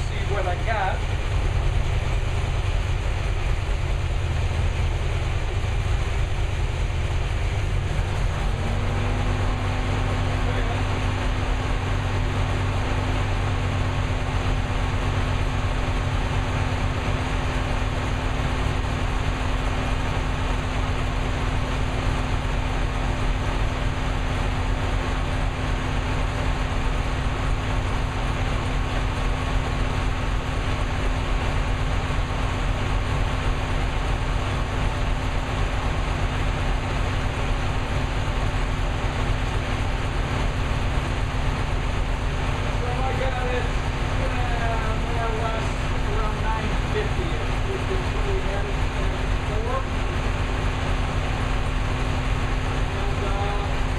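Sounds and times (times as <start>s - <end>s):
car engine idling: 0.0s - 53.9s.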